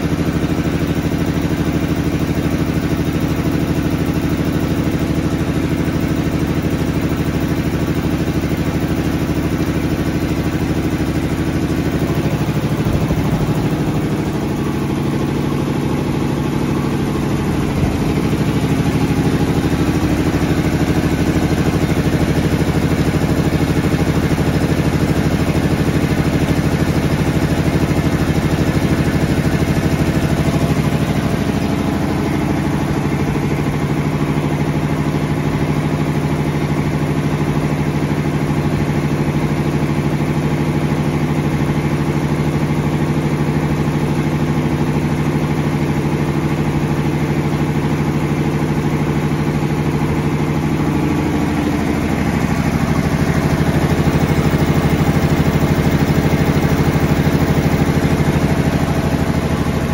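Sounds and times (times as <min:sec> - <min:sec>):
air compressor running: 0:00.0 - 0:59.9.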